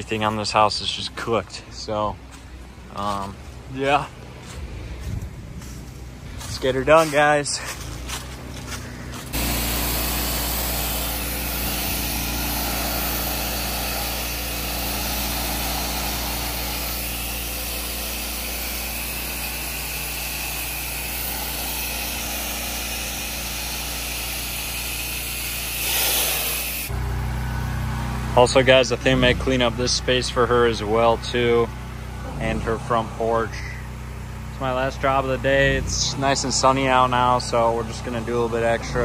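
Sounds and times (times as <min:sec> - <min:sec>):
pump and engine drone: 0:00.0 - 0:39.0
pressure washer jet hissing: 0:09.3 - 0:26.9.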